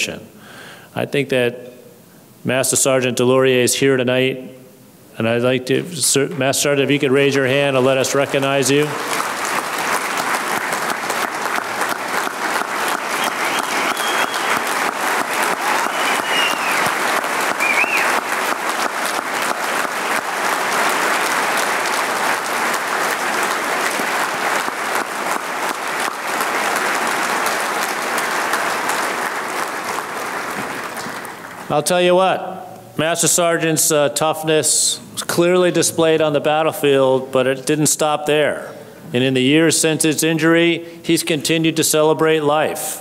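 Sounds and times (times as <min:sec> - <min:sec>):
crowd clapping: 0:07.3 - 0:31.7.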